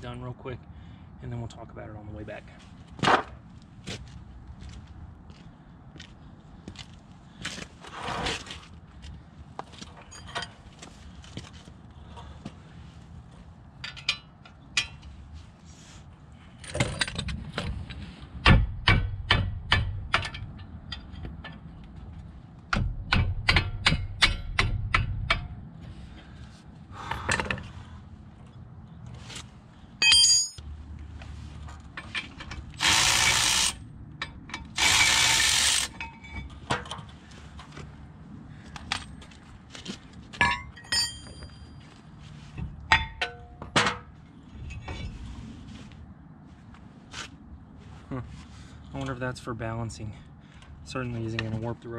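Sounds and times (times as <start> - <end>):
metal tools clanking: 9.9 - 10.6, 30.0 - 30.6, 40.4 - 41.8
ratchet clicking: 32.8 - 33.8, 34.8 - 36.0.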